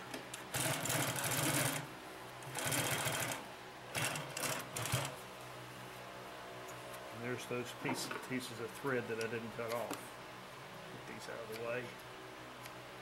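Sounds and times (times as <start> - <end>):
industrial sewing machine stitching: 0.5 - 1.9, 2.5 - 5.1.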